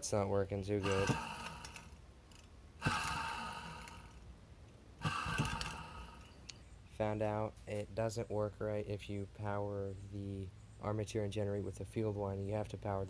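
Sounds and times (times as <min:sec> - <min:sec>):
small motor whirring: 0:05.0 - 0:06.3.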